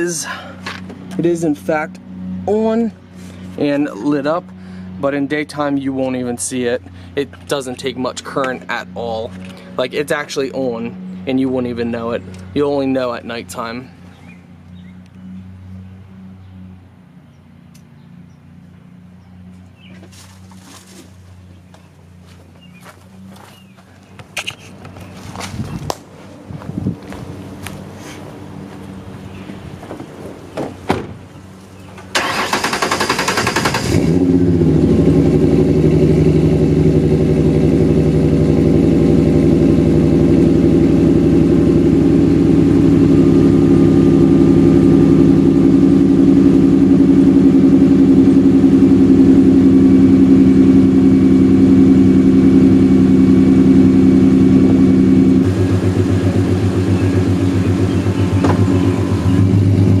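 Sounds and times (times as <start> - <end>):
car engine starting and idling: 27.1 - 60.0
car door shutting: 29.8 - 31.3, 58.3 - 58.9.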